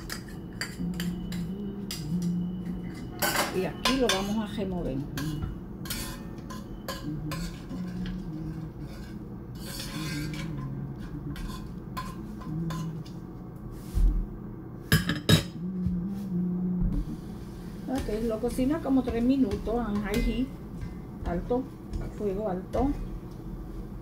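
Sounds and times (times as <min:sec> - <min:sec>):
spoon scraping and clinking in pot: 0:00.0 - 0:04.5, 0:05.2 - 0:13.1.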